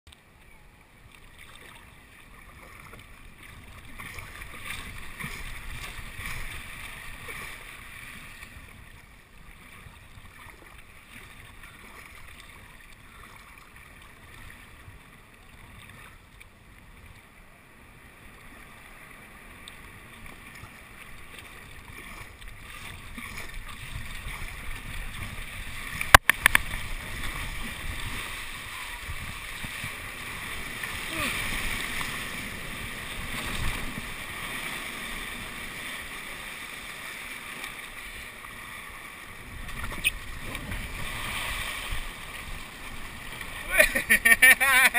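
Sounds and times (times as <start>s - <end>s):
water sloshing around kayak: 0.3s - 17.4s, 18.0s - 44.9s
wind on microphone: 21.9s - 34.4s, 39.3s - 43.2s
breaking surf: 24.0s - 44.9s.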